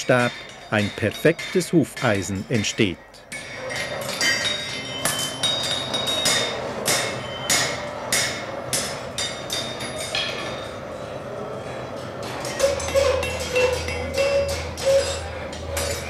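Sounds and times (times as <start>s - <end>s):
hammer striking metal on anvil: 0.0s - 10.7s.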